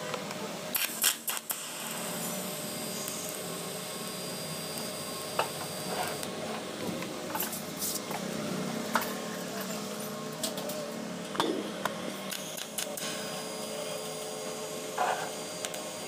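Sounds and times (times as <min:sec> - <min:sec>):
welding arc hiss: 0:00.7 - 0:11.3, 0:12.1 - 0:16.0
welding arc strike clicks: 0:00.8 - 0:02.0.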